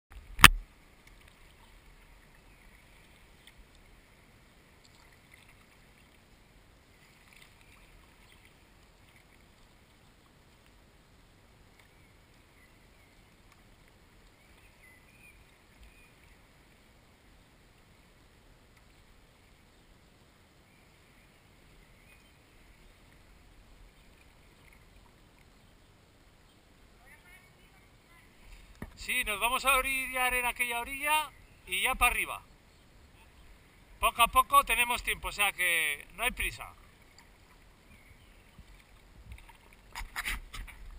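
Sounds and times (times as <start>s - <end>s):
paddle splashing in water: 4.7s - 6.3s, 6.9s - 10.6s, 22.1s - 25.6s, 35.9s - 40.9s.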